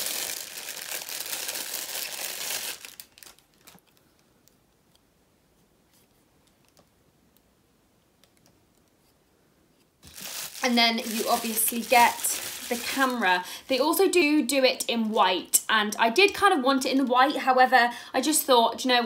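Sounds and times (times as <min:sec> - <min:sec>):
packaging crinkling: 0:00.0 - 0:04.2, 0:10.0 - 0:13.9.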